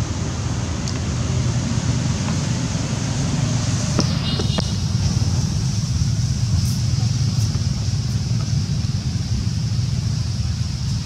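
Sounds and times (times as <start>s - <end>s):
low outdoor rumble: 0.0s - 11.0s
high-pitched hiss: 2.9s - 11.0s.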